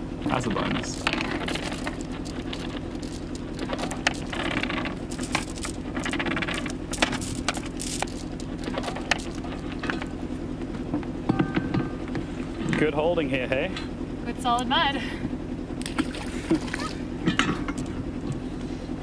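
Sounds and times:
boat engine idling hum: 0.0s - 19.0s
anchor chain clinking and rattling: 0.6s - 10.2s.

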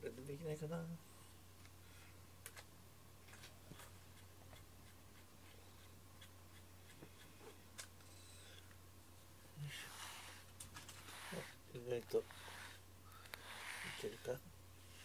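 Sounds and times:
steady low hum: 0.0s - 15.0s
brush scraping through fur: 9.6s - 15.0s.

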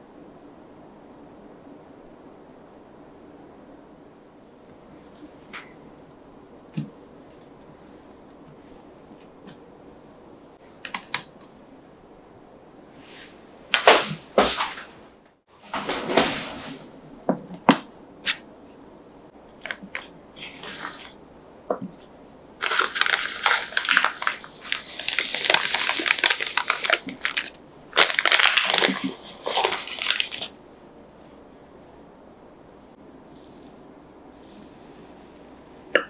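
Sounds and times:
baking paper crinkling: 19.5s - 21.2s, 21.9s - 30.6s.

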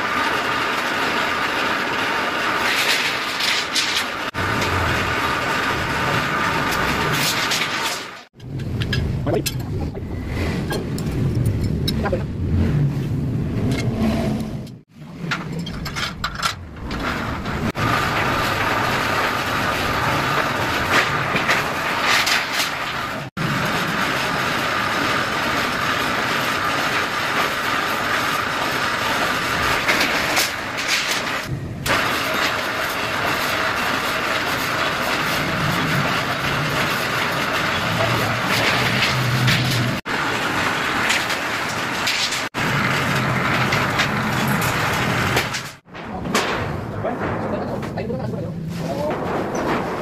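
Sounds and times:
metal slitting machine hiss and whine: 16.9s - 45.8s.

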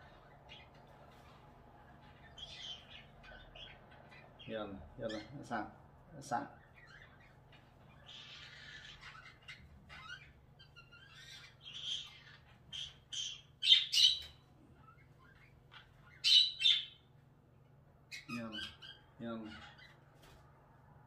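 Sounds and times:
parrot squawking: 2.0s - 5.6s, 6.4s - 17.1s, 18.1s - 20.1s.

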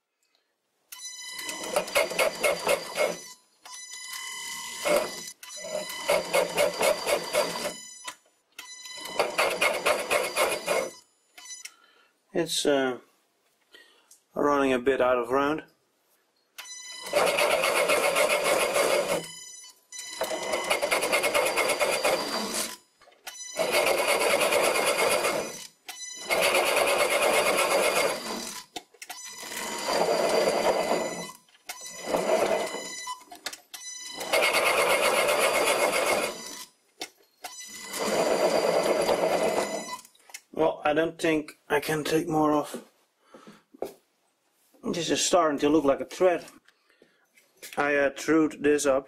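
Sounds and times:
lathe cutting wood: 1.6s - 3.2s, 5.7s - 7.8s, 20.2s - 22.7s, 23.6s - 25.6s, 26.2s - 28.6s, 29.4s - 31.3s, 32.0s - 32.8s, 34.2s - 36.4s, 37.8s - 40.0s.

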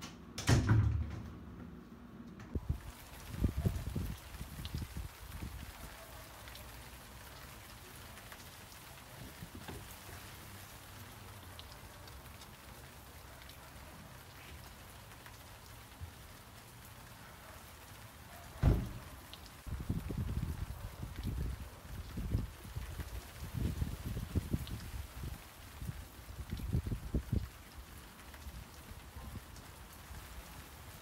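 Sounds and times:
rain pattering on car: 2.5s - 31.0s
sharp thump: 18.6s - 19.0s.

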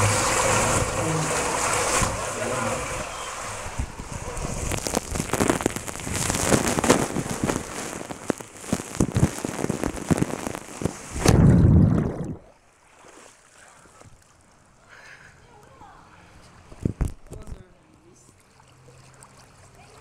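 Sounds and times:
deep whoosh into pool: 0.0s - 13.7s
water rushing over microphone: 0.0s - 13.7s.

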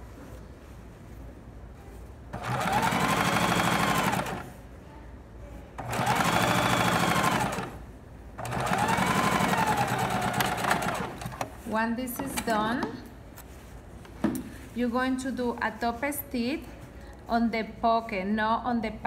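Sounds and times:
sewing machine stitching: 2.4s - 4.5s, 5.8s - 7.8s, 8.4s - 11.5s.

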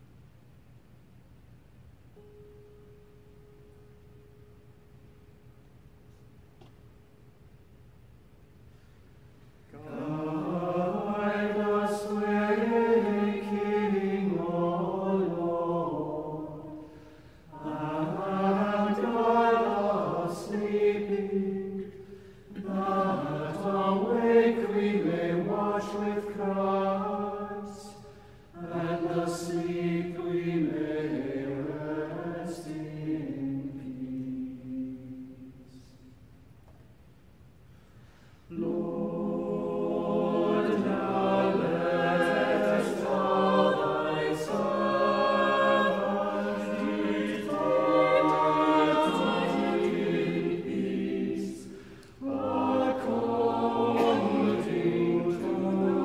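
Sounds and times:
church choir singing a cappella: 9.6s - 36.2s, 38.0s - 56.0s.

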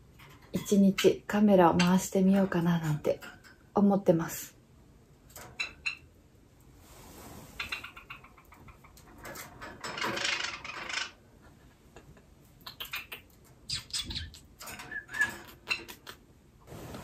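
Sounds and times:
sparrow chirping and clicking: 12.6s - 16.2s.

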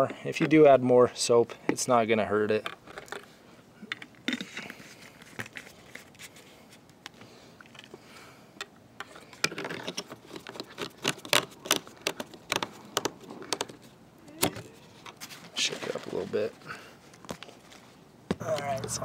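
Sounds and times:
hard plastic clicking and scraping: 9.0s - 15.2s.

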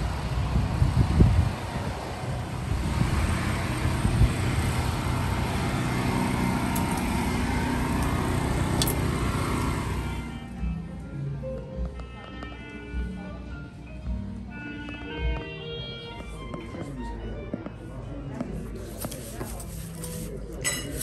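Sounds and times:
cars passing: 0.0s - 10.8s.

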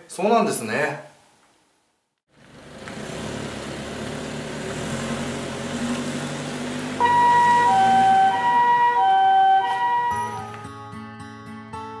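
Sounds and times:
ambulance engine running: 2.3s - 10.7s
two-tone siren: 7.0s - 10.7s.

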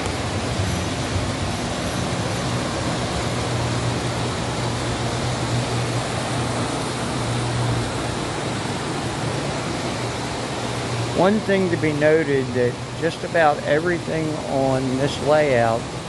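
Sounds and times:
low even hum: 0.0s - 16.0s.

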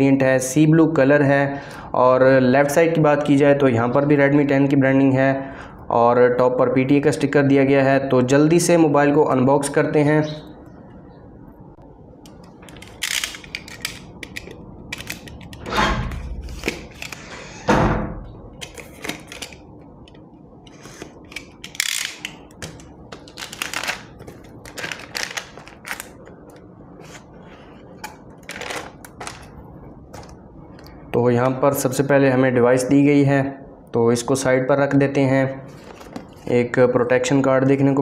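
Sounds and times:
plastic wrap crackling and crinkling: 21.2s - 30.5s.

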